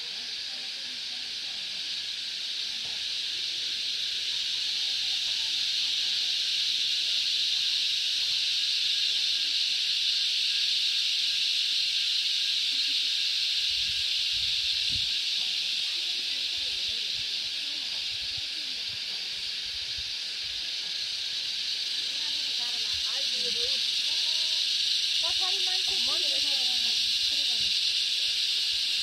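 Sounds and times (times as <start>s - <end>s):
cicadas singing: 0.0s - 29.0s.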